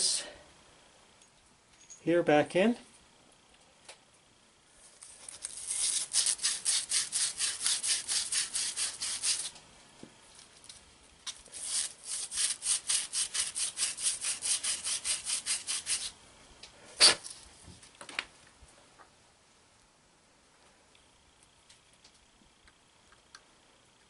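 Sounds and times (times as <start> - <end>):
abrasive cloth rubbing metal part: 5.5 - 9.5, 11.5 - 16.1.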